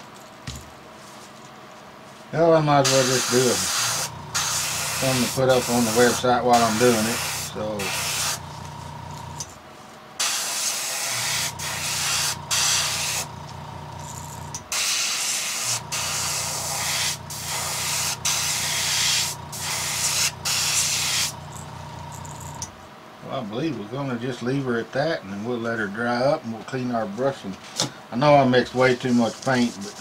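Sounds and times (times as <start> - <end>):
airbrush spraying hiss: 2.8 - 8.5, 10.2 - 13.3, 14.7 - 21.4
low motor hum: 3.6 - 9.6, 11.2 - 14.6, 15.8 - 22.8.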